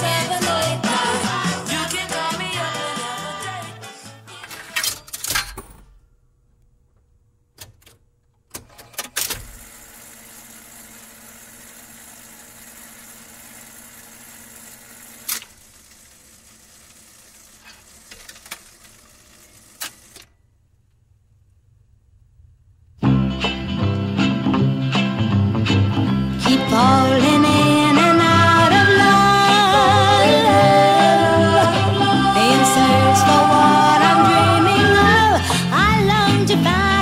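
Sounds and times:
jukebox mechanical clicks and clunks: 0:04.3 - 0:06.0, 0:07.0 - 0:09.8, 0:15.2 - 0:15.6, 0:17.6 - 0:20.4.

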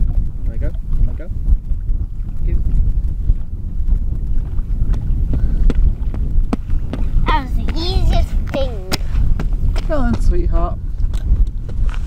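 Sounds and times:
wind buffeting microphone: 0:00.0 - 0:12.0
child running on concrete: 0:04.8 - 0:10.5.

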